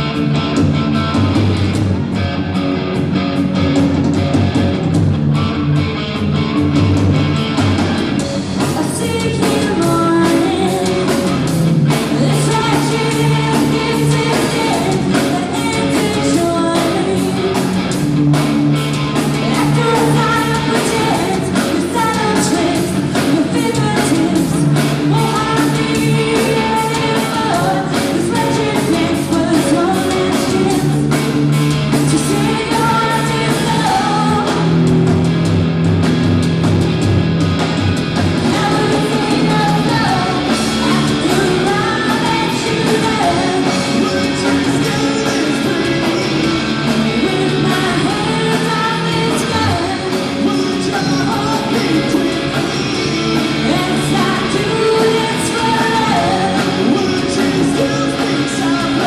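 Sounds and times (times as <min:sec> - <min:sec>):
live rock band playing: 0:00.0 - 0:59.0
woman singing: 0:08.6 - 0:17.8, 0:19.4 - 0:31.2, 0:31.9 - 0:34.9, 0:38.4 - 0:59.0.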